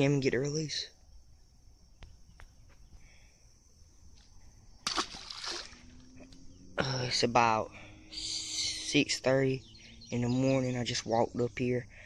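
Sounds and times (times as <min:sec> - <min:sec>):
fish splashing into water: 0:04.8 - 0:06.2.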